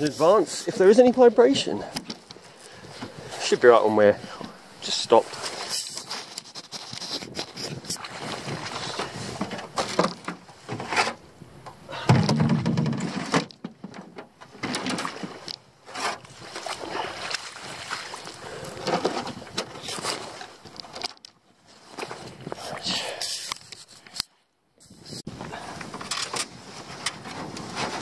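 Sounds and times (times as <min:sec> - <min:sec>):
knocks and rustling in a boat: 0:00.0 - 0:24.2, 0:24.8 - 0:28.0
wind on microphone: 0:06.4 - 0:09.7, 0:22.1 - 0:23.1.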